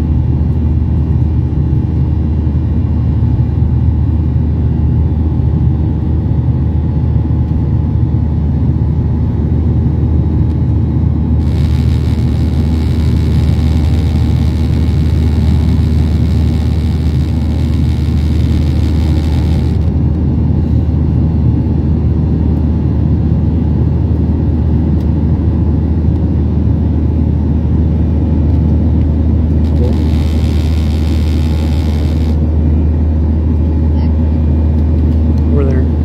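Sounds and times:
low engine rumble: 0.0s - 36.0s.

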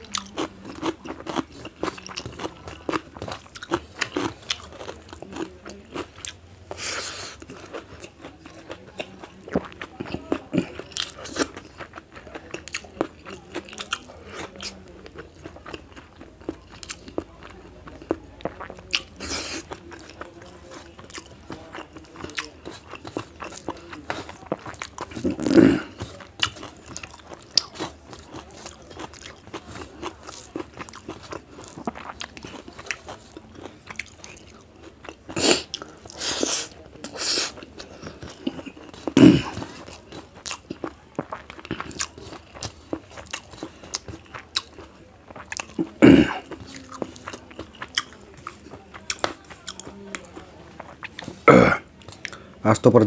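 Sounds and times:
person chewing and crunching food: 0.0s - 52.6s
mouth sounds: 23.4s - 26.6s, 35.2s - 44.6s, 45.6s - 47.1s, 47.9s - 53.0s.

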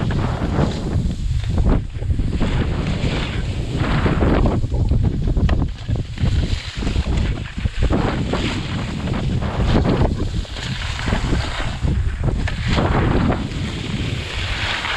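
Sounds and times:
skis scraping on snow: 0.0s - 14.9s
wind buffeting microphone: 0.0s - 14.9s.

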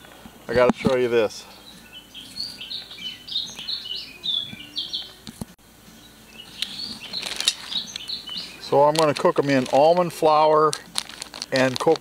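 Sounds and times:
small birds chirping: 0.0s - 11.0s
plastic bag rustling: 6.6s - 12.0s.

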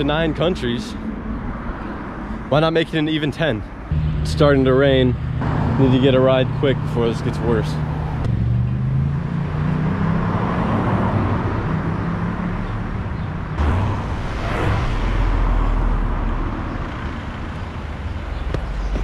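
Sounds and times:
cars driving past: 3.8s - 19.0s.

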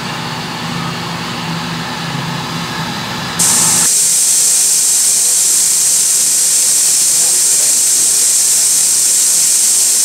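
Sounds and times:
low workshop hum: 2.7s - 10.0s
loud steady hiss: 3.4s - 10.0s.

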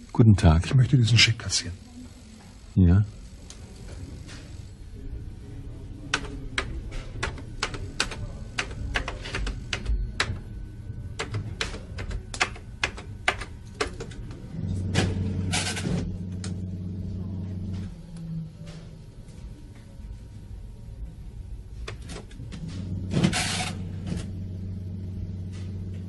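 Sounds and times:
low steady hum: 0.0s - 26.0s
typewriter keys clicking: 6.1s - 10.4s, 11.2s - 14.2s.

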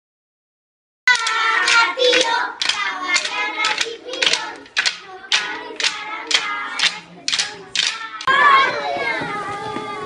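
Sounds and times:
children chanting: 1.1s - 10.0s
sticks knocking on a log: 2.1s - 8.0s.

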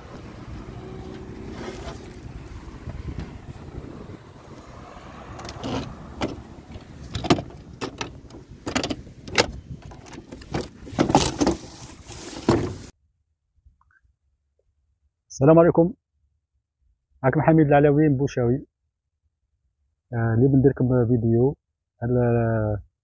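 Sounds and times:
low rumbling handling noise: 0.0s - 12.9s
wooden knocks and clicks: 5.4s - 11.6s.

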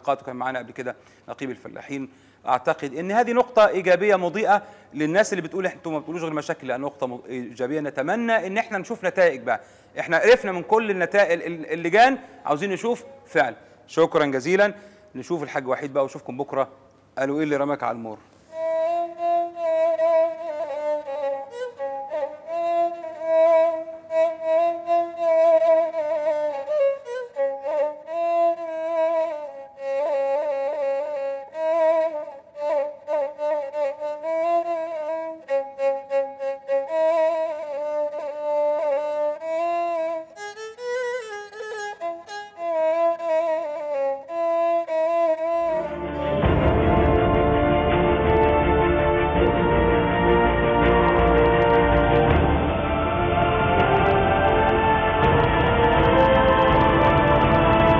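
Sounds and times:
bowed spike fiddle melody: 18.5s - 57.9s.

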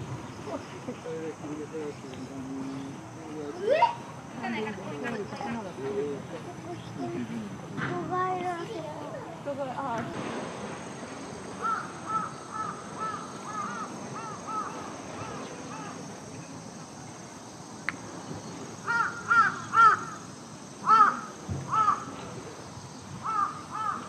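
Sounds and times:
crow cawing: 11.6s - 16.0s, 18.9s - 20.2s, 20.8s - 22.1s, 23.2s - 24.0s.

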